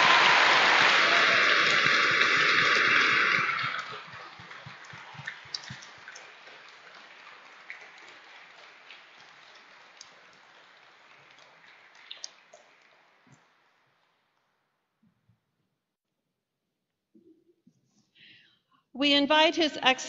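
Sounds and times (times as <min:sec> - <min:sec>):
applause: 0:00.0 - 0:13.2.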